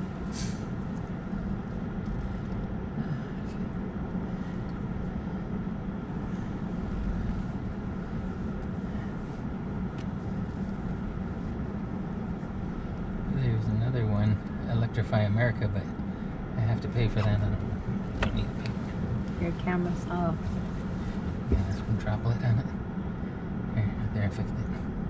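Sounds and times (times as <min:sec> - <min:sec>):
low cabin hum: 0:00.0 - 0:25.0
road and tyre noise: 0:00.0 - 0:25.0.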